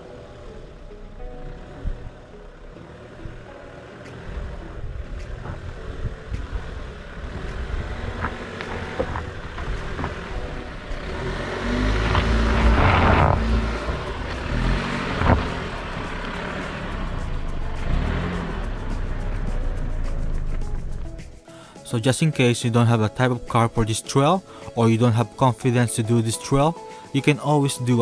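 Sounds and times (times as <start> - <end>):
engine and tyre rumble: 0.0 - 21.8
knocks and clatters: 7.5 - 11.1.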